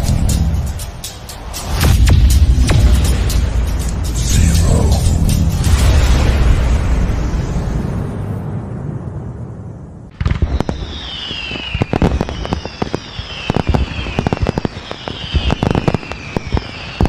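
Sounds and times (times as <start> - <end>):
firework bangs and crackles: 1.4 - 9.0, 10.1 - 17.0
low rumble: 1.7 - 11.1
falling firework whistles: 10.1 - 17.0.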